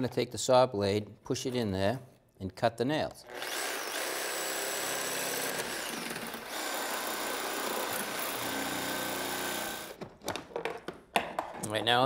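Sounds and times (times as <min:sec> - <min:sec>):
reciprocating saw cutting nails: 0:03.3 - 0:10.0.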